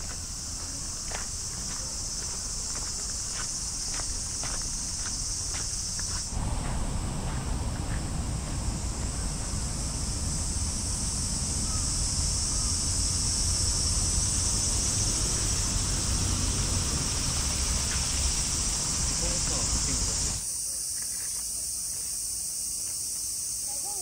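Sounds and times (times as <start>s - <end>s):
cicada chorus drone: 0.0s - 24.0s
wind rumble on microphone: 6.2s - 19.1s.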